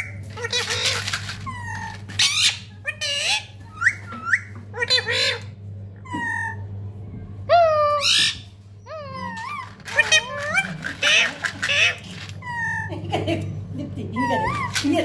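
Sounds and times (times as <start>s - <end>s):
parakeet chirps and squawks: 0.0s - 6.7s, 7.6s - 12.9s.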